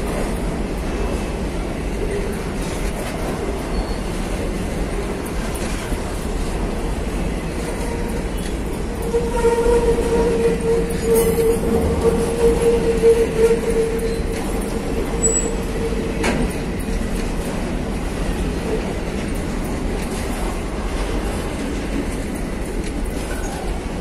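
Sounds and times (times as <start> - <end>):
train wheels rumbling on rails: 0.0 - 24.0
high-pitched wheel squeal: 8.3 - 15.8.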